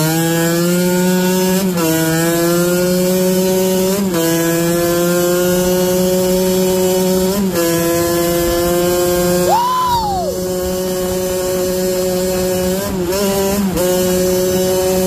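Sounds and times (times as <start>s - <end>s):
motorcycle engine buzzing: 0.0s - 15.0s.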